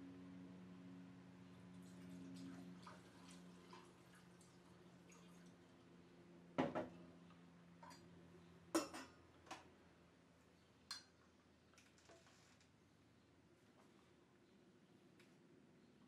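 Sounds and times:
liquid trickling through funnel: 0:01.8 - 0:05.6.

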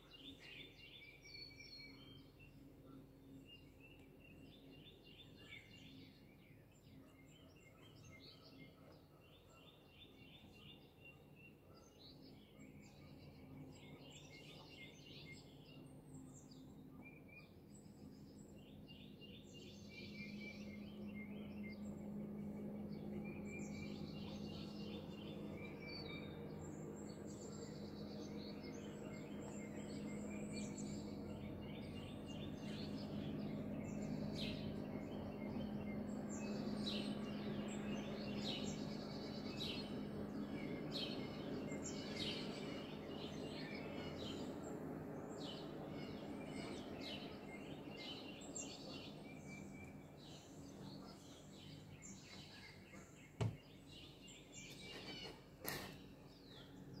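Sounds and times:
small birds chirping: 0:00.0 - 0:57.0
distant motorboat hum: 0:19.5 - 0:57.0
knock: 0:53.4 - 0:53.6.

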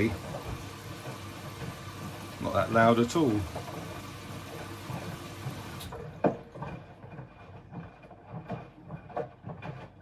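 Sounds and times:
washing machine drum turning: 0:00.0 - 0:06.9
detergent pot clonking: 0:00.0 - 0:10.0.

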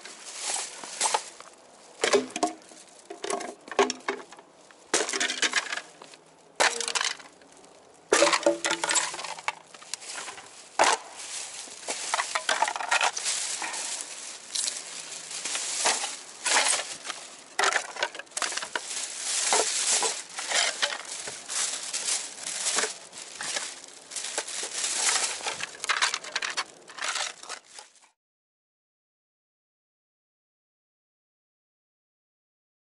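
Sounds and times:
footsteps crunching on gravel: 0:00.0 - 0:28.1
plastic garbage bag rustling: 0:00.0 - 0:28.1
wooden pieces clattering: 0:02.0 - 0:07.4, 0:08.1 - 0:28.0.

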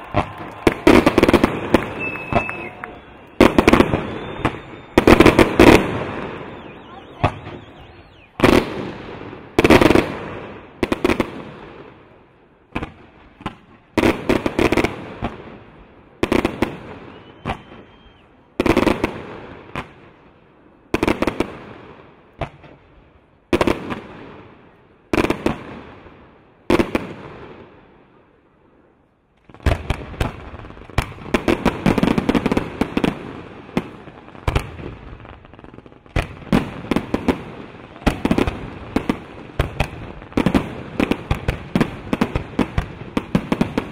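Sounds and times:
fireworks bangs: 0:00.0 - 0:22.9, 0:29.4 - 0:43.9
fireworks crackling: 0:00.0 - 0:43.9.

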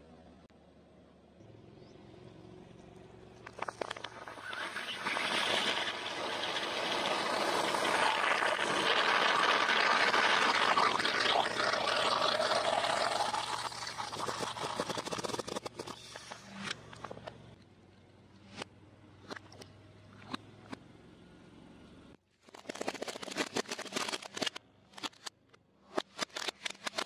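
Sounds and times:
liquid and air hissing out: 0:03.5 - 0:16.6.

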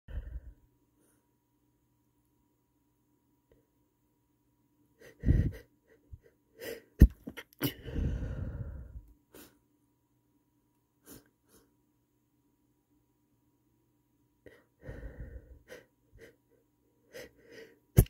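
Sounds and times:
long breathy release: 0:07.6 - 0:09.6, 0:14.8 - 0:15.9.

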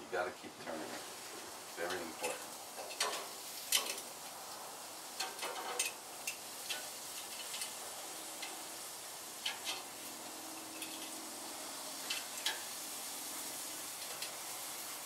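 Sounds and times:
meat sizzling on a grill: 0:00.0 - 0:15.0
metal tongs clicking on skewers: 0:01.9 - 0:04.1, 0:05.2 - 0:07.8, 0:08.4 - 0:08.6, 0:10.6 - 0:11.2, 0:12.0 - 0:12.7.

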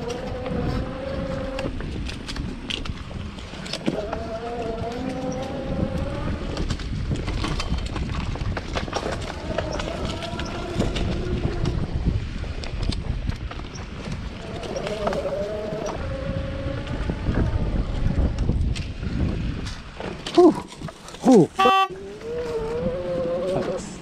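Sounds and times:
electric bike motor whining: 0:00.0 - 0:02.4, 0:03.6 - 0:07.1, 0:09.0 - 0:13.0, 0:13.7 - 0:19.6
bike rattling on dirt trail: 0:00.0 - 0:21.6.

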